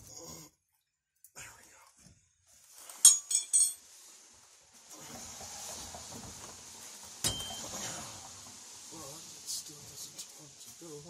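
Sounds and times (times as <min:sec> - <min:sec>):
ringing metal clink: 0:03.0 - 0:03.8.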